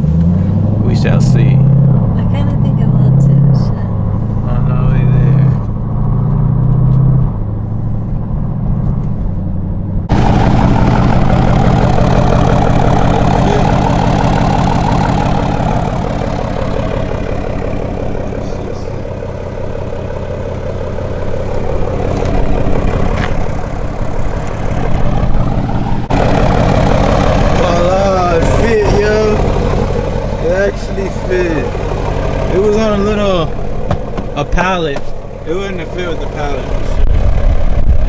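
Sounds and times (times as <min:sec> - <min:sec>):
engine humming inside cabin: 0:00.0 - 0:38.0
engine idling outdoors: 0:10.0 - 0:38.0.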